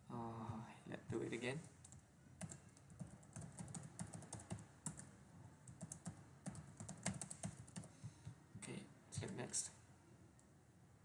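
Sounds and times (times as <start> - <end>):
keyboard typing: 1.7 - 5.1, 5.7 - 8.0, 9.2 - 9.5.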